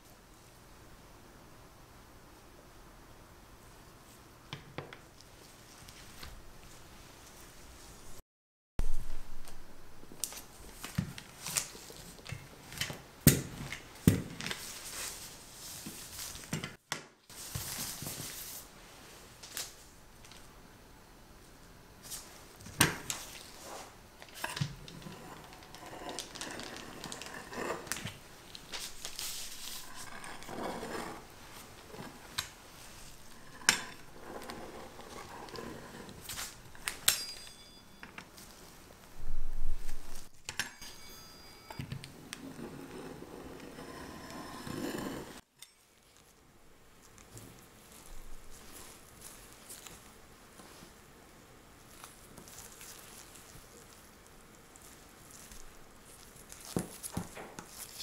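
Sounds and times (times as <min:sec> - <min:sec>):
cutter scraping through dough: 0:23.6 - 0:28.2, 0:28.9 - 0:36.6, 0:42.4 - 0:45.4.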